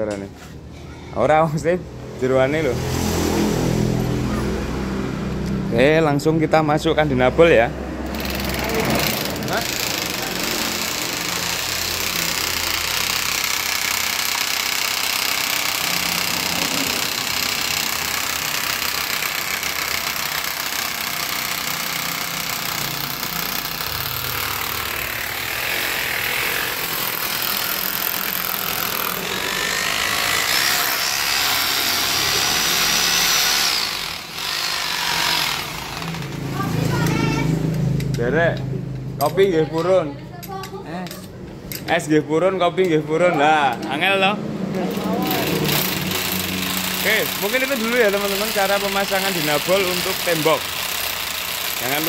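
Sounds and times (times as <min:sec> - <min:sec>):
electric hammer drill running: 0:08.0 - 0:37.5, 0:44.9 - 0:52.0
rising drill whine: 0:10.5 - 0:36.4.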